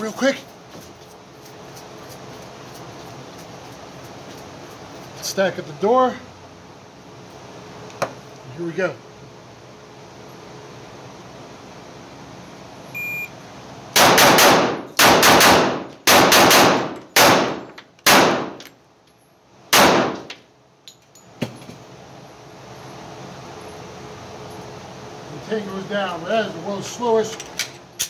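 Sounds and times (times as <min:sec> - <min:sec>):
shot timer beep: 0:13.0 - 0:13.3
pistol shots ringing indoors: 0:14.0 - 0:18.6, 0:19.7 - 0:20.3.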